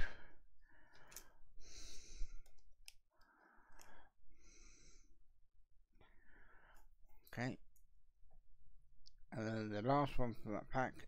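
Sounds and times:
person breathing close: 0.0 - 5.2, 6.0 - 6.9.

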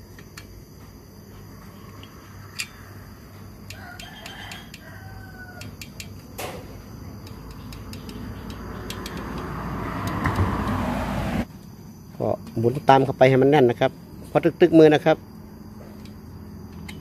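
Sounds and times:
hand tools clicking on metal: 1.9 - 2.9, 3.6 - 4.9, 5.5 - 6.5, 7.2 - 10.3, 16.0 - 17.0.

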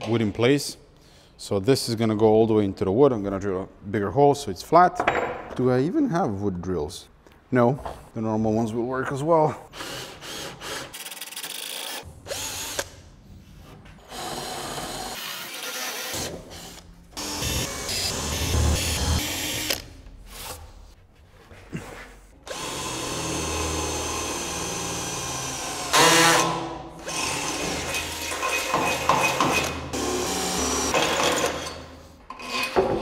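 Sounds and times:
cordless drill boring: 14.1 - 19.8, 22.5 - 26.4.

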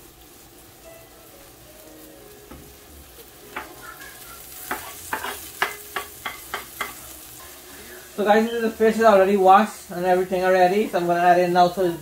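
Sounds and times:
food sizzling in a frying pan: 0.0 - 12.0
board tapping against pan: 4.6 - 7.0.

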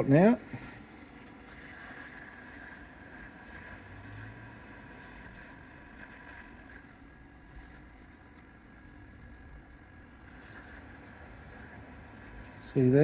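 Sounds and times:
machine hum and fan noise: 0.0 - 13.0.

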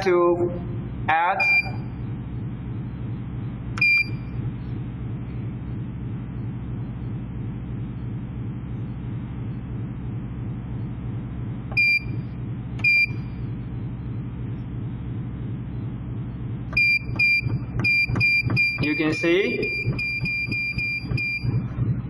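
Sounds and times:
steady low hum: 0.0 - 22.0
printer keypad beeps: 1.4 - 1.8, 16.8 - 21.7.

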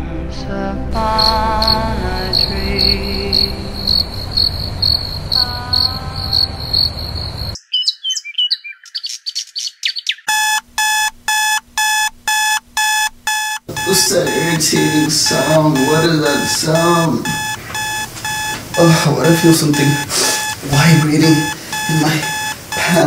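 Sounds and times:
background music: 0.0 - 4.5
high chirping: 1.0 - 23.0
phone alarm beeping: 1.1 - 7.6, 10.3 - 23.0.

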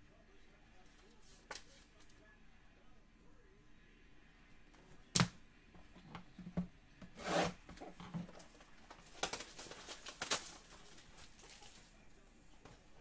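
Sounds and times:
cards rubbing and sliding: 7.0 - 11.9.

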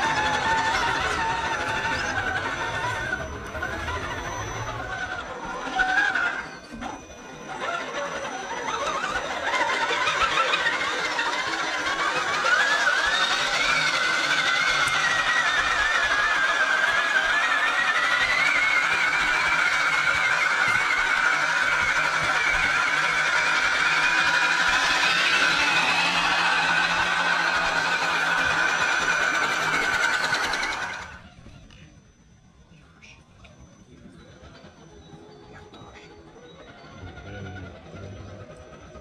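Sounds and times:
electric motor whine: 0.0 - 39.0.

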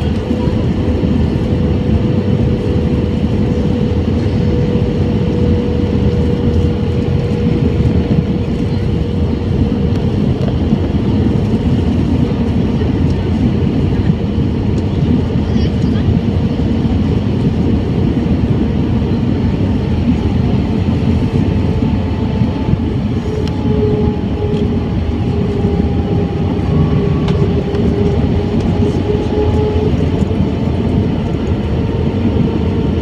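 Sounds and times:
airplane cabin airflow and engine noise: 0.0 - 33.0
faint engine tone: 21.1 - 33.0.

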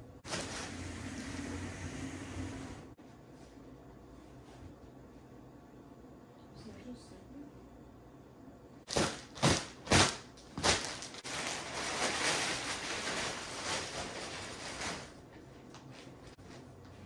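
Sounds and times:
plastic wrap rustling and crinkling: 0.2 - 0.9, 8.9 - 16.4.

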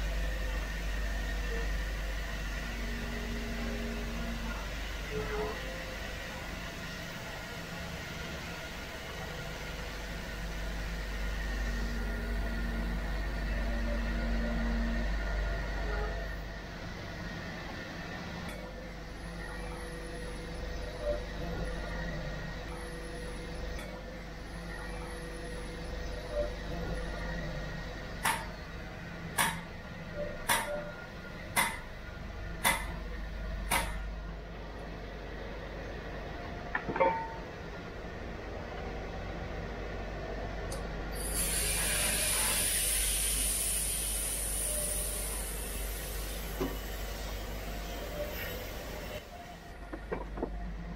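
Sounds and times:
machinery hum and rumble: 0.0 - 50.9
thin steady whines: 0.0 - 50.9.

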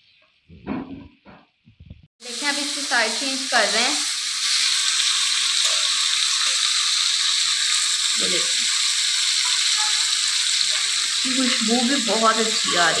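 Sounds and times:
fish sizzling in oil: 2.2 - 13.0.

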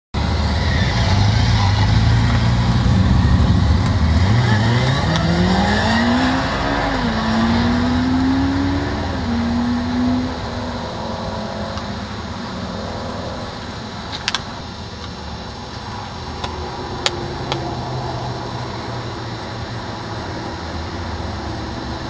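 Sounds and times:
motorcycle engine accelerating: 0.2 - 14.6.

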